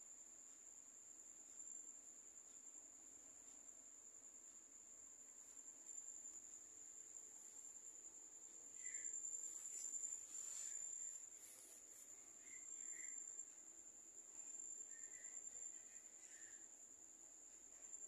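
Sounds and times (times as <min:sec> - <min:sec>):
cricket trilling: 0:00.0 - 0:18.0
soft rustle: 0:05.2 - 0:16.6
faint high chirps: 0:08.5 - 0:16.9.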